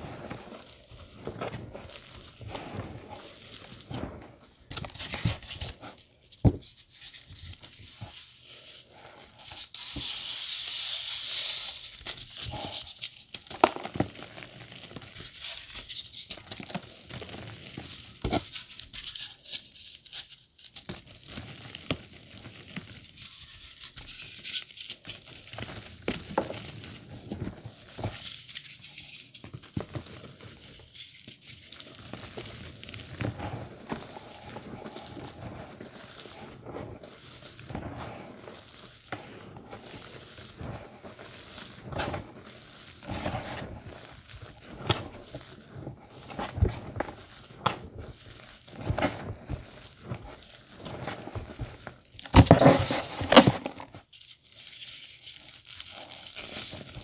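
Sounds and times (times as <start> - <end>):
chalk powder pouring: 8.5 - 13.1, 34.0 - 39.0, 39.7 - 44.8.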